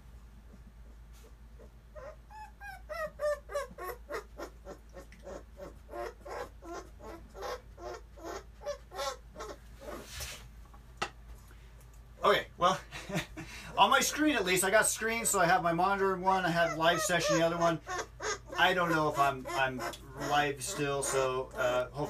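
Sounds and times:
puppies whining: 0:01.2 - 0:10.2, 0:16.3 - 0:22.0.

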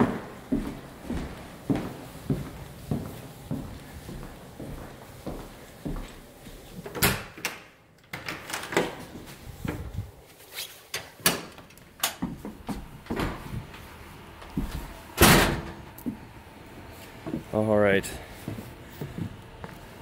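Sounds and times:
footsteps on porch: 0:00.0 - 0:07.1, 0:08.9 - 0:15.2, 0:15.9 - 0:20.0.

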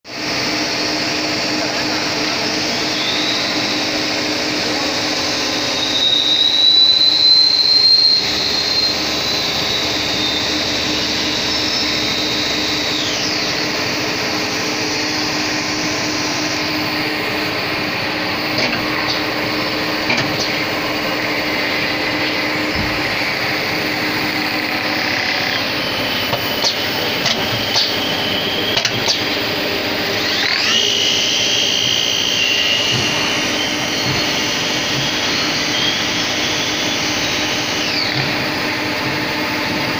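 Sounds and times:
high machine whine: 0:00.1 - 0:39.9
lathe machine hum: 0:00.1 - 0:39.9
clicks: 0:28.8 - 0:29.3.

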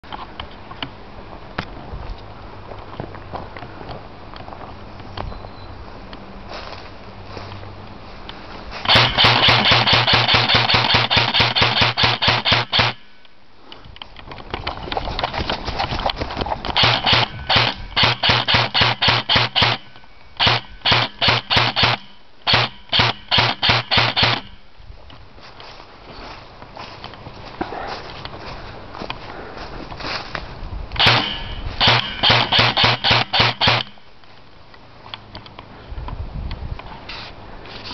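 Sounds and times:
airsoft gun firing: 0:08.9 - 0:13.1, 0:16.8 - 0:24.5, 0:31.0 - 0:34.0.

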